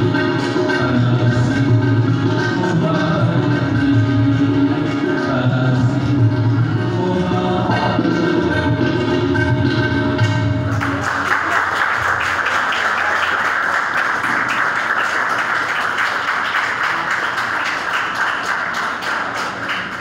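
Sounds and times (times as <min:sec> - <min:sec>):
held sung note with accompaniment: 0:00.0 - 0:11.3
congregation clapping: 0:10.7 - 0:20.0.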